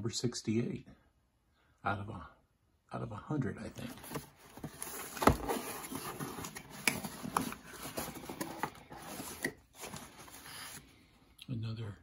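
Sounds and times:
cardboard flaps rustling: 0:03.8 - 0:10.8.

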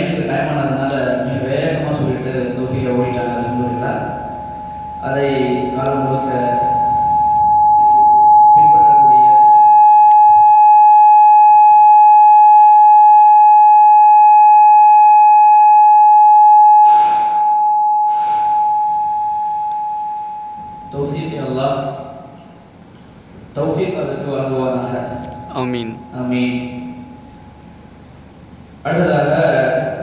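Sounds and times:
microphone feedback howl: 0:01.5 - 0:22.6, 0:24.2 - 0:27.8
man's voice: 0:24.9 - 0:26.5.

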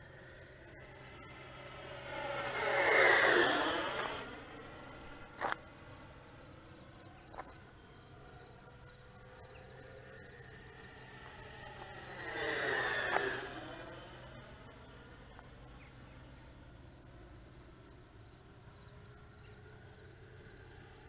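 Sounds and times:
high-pitched buzz: 0:00.0 - 0:16.1
electric ducted-fan jet whine: 0:00.0 - 0:21.0.

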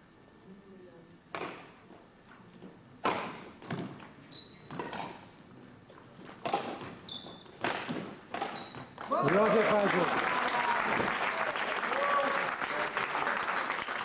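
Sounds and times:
racket striking shuttlecock: 0:01.3 - 0:01.8, 0:03.0 - 0:04.0, 0:04.7 - 0:05.3, 0:06.2 - 0:09.1
shoes squeaking on wooden floor: 0:03.6 - 0:05.2, 0:05.9 - 0:09.0.

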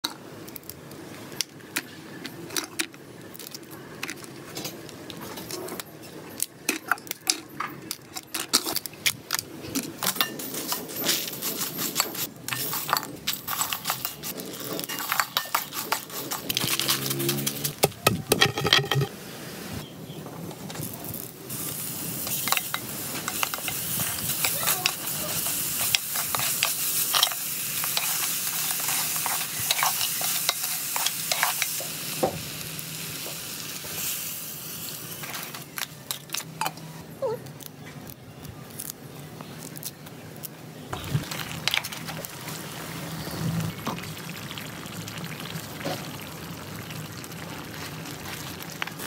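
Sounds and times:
ladle stirring in a metal wok: 0:10.2 - 0:19.1, 0:21.6 - 0:32.0
cookware clinking and knocking: 0:17.8 - 0:19.1
garlic sizzling in oil: 0:20.6 - 0:36.2.

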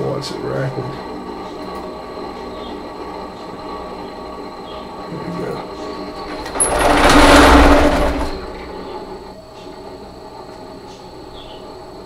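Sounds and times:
cnc machine running: 0:00.0 - 0:12.0
servo motor whine: 0:06.0 - 0:09.3.

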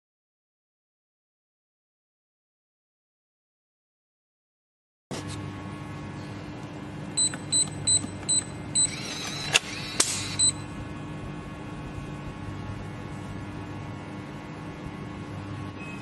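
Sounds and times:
short high-pitched keypad beeps: 0:07.2 - 0:09.0, 0:10.4 - 0:10.6
lock mechanism whirring: 0:07.6 - 0:10.6.

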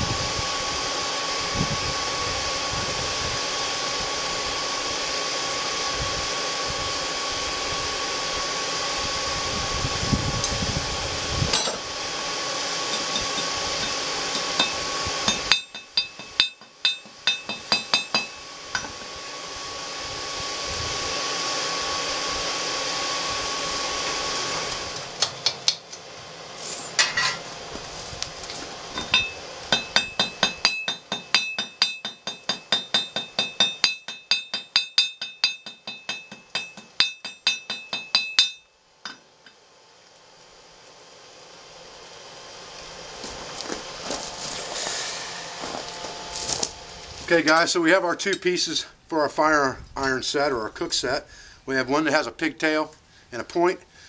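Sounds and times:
forge air blower: 0:00.0 - 0:49.0
hammer striking metal on anvil: 0:11.5 - 0:11.8, 0:12.9 - 0:19.0, 0:26.9 - 0:27.4, 0:29.0 - 0:39.6.

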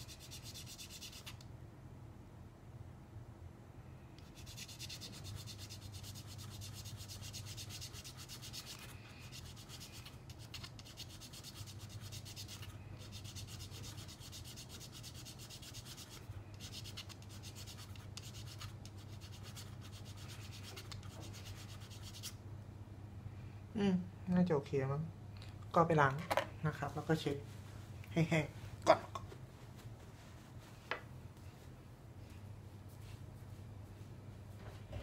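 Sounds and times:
steady low hum: 0:00.0 - 0:35.0
needle file rasping on plastic: 0:04.2 - 0:22.4.

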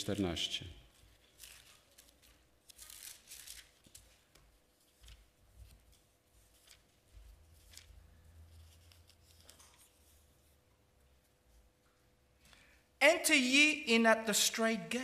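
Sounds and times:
paper pages rustling: 0:00.9 - 0:10.5.

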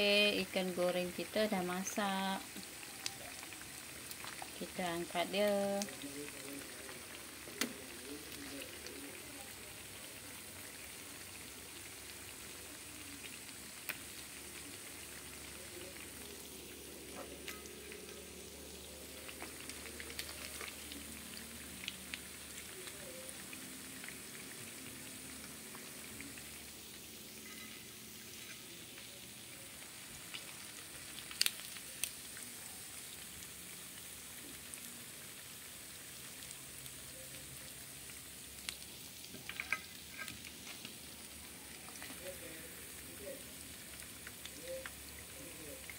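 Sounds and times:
oil sizzling in a pan: 0:00.0 - 0:45.9
metal tongs clicking on pan: 0:39.4 - 0:40.4.

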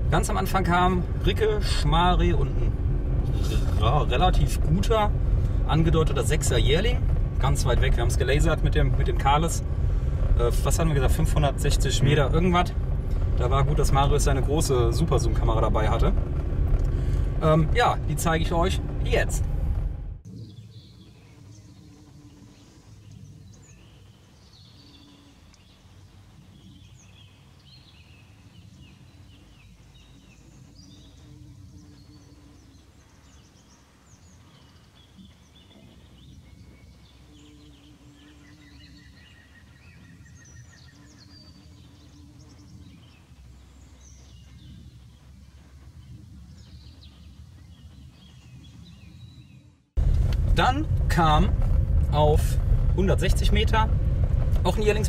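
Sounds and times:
songbirds singing and chirping: 0:00.0 - 0:19.5, 0:20.2 - 0:50.0
low hum: 0:00.0 - 0:55.0
low rumble: 0:00.0 - 0:55.0
bird trill: 0:26.6 - 0:45.2.

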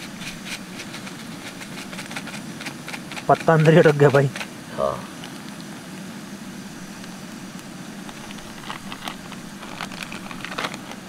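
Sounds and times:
oil and spices frying: 0:00.0 - 0:11.0
plastic bag crinkling: 0:08.0 - 0:11.0.

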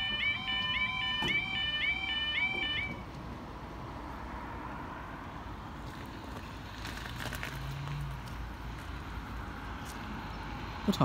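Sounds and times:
level-crossing warbling alarm: 0:00.0 - 0:03.0
distant road traffic: 0:00.0 - 0:11.0.

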